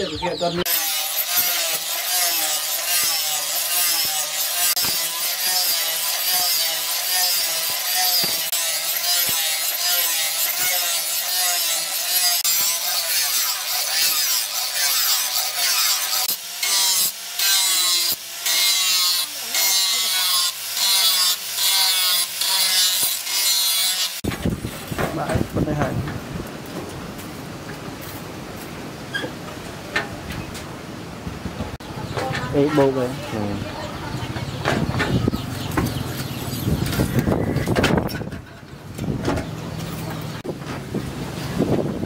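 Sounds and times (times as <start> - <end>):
angle grinder grinding steel: 0.4 - 25.8, 32.5 - 39.1.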